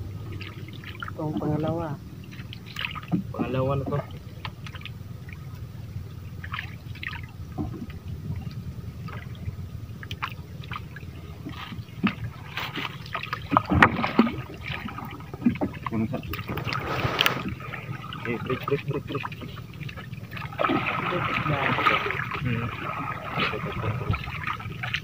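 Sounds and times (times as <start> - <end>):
steady low rumble: 0.0 - 25.0
water splashing and gurgling: 0.0 - 25.0
gear knocking against boat: 7.5 - 20.7.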